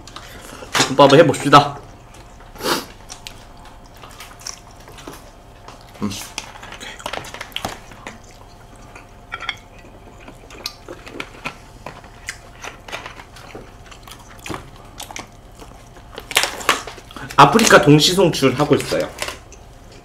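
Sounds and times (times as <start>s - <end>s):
chewing: 1.8s - 17.4s.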